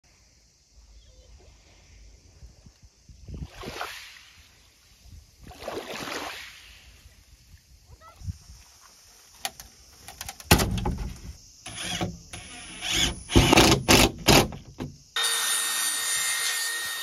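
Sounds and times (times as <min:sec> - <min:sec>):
small waves lapping on shore: 0:01.3 - 0:10.0.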